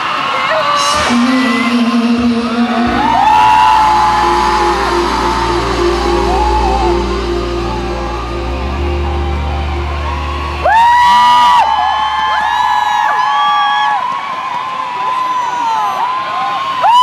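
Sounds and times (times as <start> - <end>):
audience screaming and whooping: 0.0 - 17.0
sustained chord of live music: 0.8 - 14.0.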